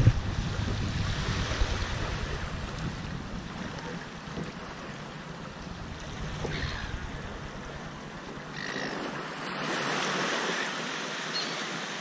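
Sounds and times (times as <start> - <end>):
small waves washing on shore: 0.0 - 12.0.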